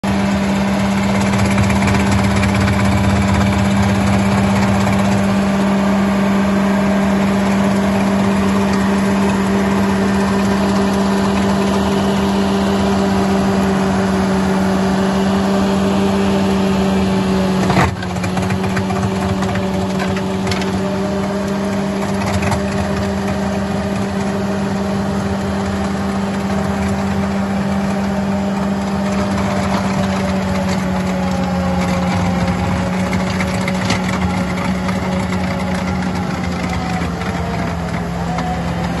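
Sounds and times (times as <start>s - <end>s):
skid steer engine hum: 0.0s - 39.0s
trencher cutting soil: 0.0s - 39.0s.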